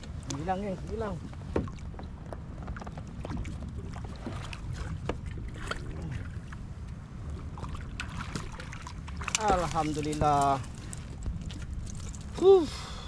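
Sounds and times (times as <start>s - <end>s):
water against kayak: 0.0s - 13.0s
wind rumble on microphone: 0.0s - 13.0s.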